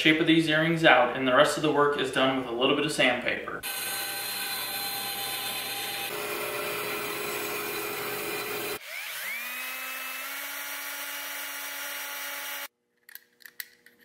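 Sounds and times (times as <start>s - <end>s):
band saw cutting wood: 3.6s - 12.7s
cordless drill whining: 3.6s - 12.7s.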